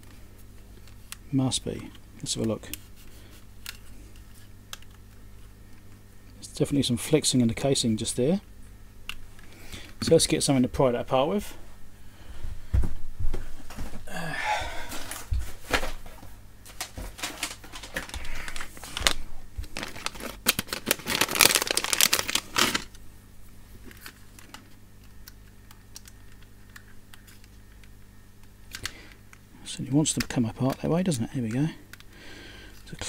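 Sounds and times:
plastic bag crinkling: 16.7 - 23.0.

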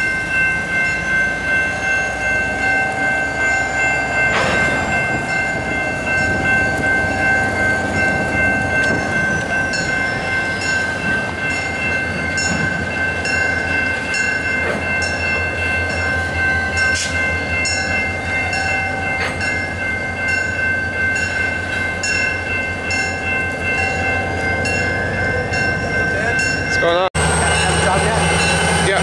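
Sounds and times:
crossing warning bell ringing: 0.0 - 29.0
diesel locomotive rumble: 0.0 - 29.0.

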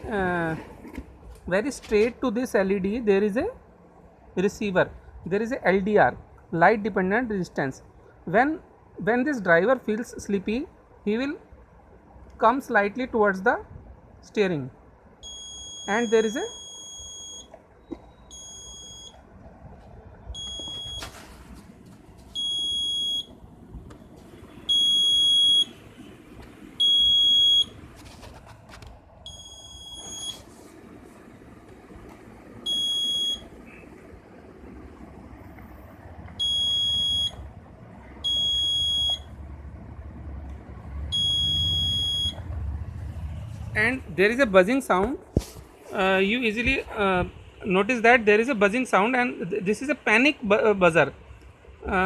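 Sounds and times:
high-pitched alarm buzzer beeping: 15.2 - 17.5, 18.2 - 19.1, 29.3 - 30.4, 32.7 - 33.4, 36.4 - 37.4, 38.2 - 39.2, 41.1 - 42.4.

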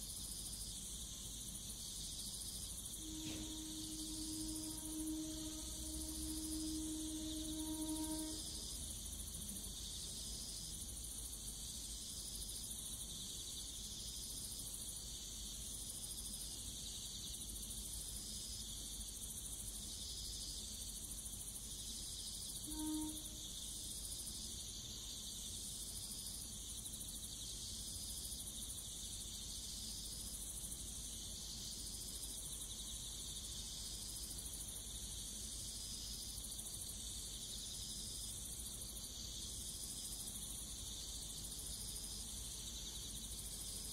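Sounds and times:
insects chirping: 0.0 - 43.9
faint train horn blast: 2.9 - 9.7, 22.6 - 23.6.

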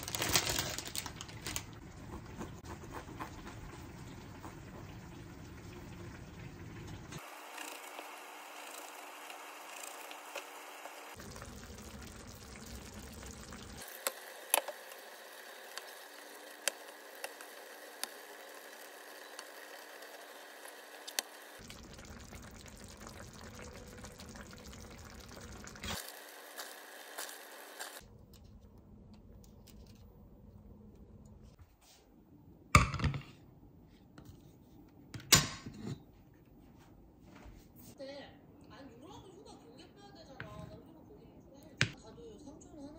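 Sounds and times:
sauce simmering and bubbling in a pan: 1.6 - 28.0.

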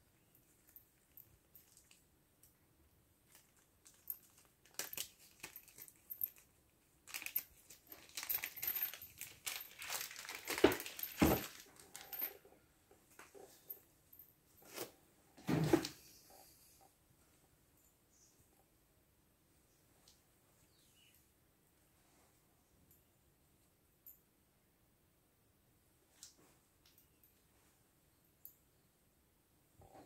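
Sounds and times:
paper and plastic rustling: 7.1 - 12.1.

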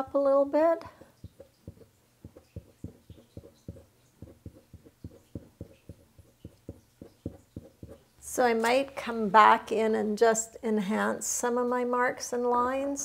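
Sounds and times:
paintbrush tapping on panel: 1.0 - 8.0.

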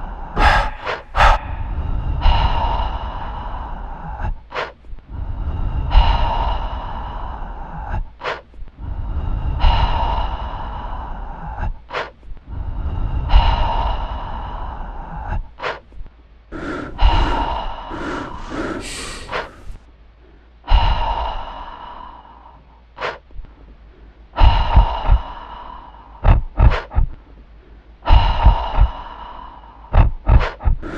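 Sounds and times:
person breathing heavily: 0.0 - 30.9.

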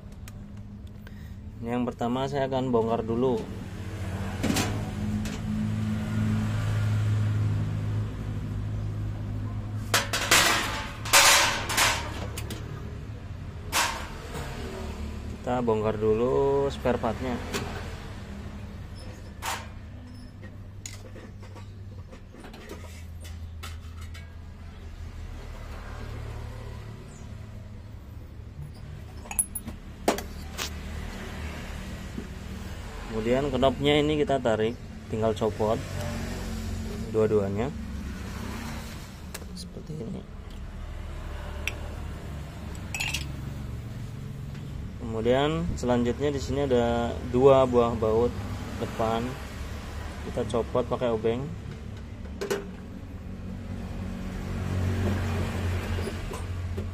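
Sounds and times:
sheet metal clanking and rattling: 9.9 - 12.4
metal stove parts clinking: 9.9 - 12.6, 13.7 - 14.2, 22.4 - 24.4, 29.1 - 29.7, 42.8 - 43.4.

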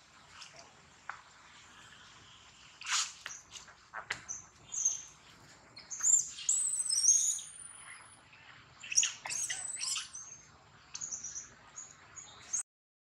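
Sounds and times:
baby monkey squealing: 8.9 - 10.2.

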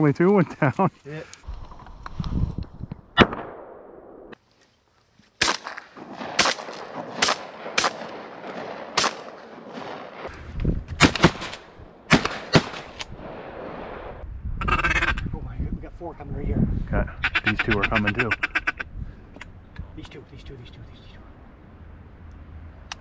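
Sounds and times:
shotgun shots: 3.2 - 3.9, 5.4 - 10.3, 11.0 - 14.1.

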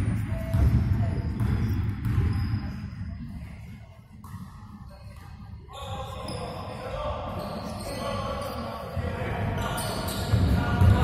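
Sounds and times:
basketball bouncing on wooden court: 0.0 - 2.8, 10.2 - 11.0
players' voices: 0.1 - 11.0.

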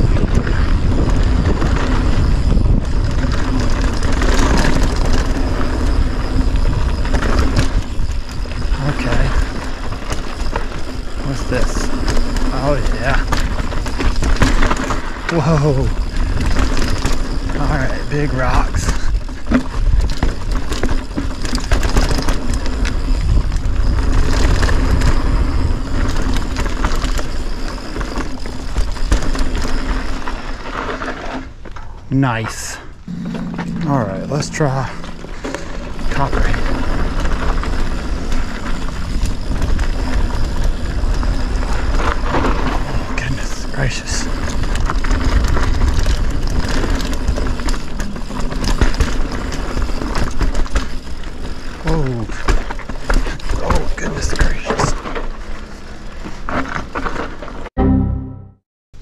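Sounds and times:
wind buffeting microphone: 0.0 - 27.6, 34.3 - 51.8
bike tyres crunching over rock: 0.0 - 32.8, 34.0 - 57.7.

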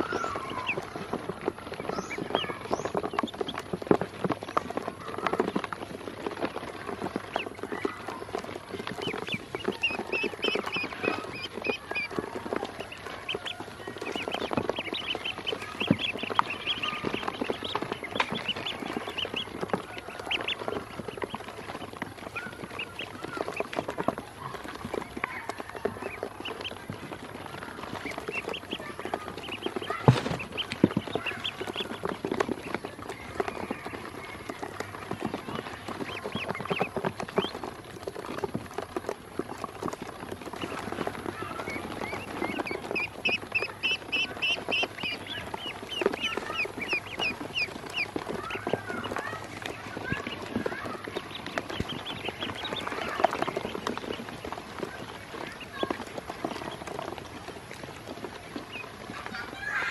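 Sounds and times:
ducklings peeping: 0.0 - 59.9
bills tapping on plastic: 29.9 - 32.6
loud knock: 30.0 - 30.6.

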